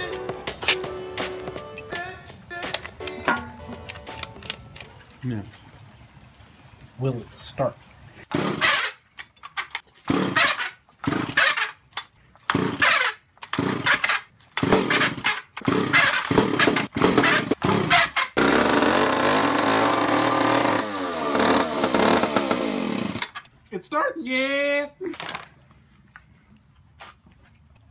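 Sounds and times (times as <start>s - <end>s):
chainsaw engine running: 8.3s - 8.8s, 10.1s - 11.6s, 12.5s - 13.0s, 13.6s - 23.4s.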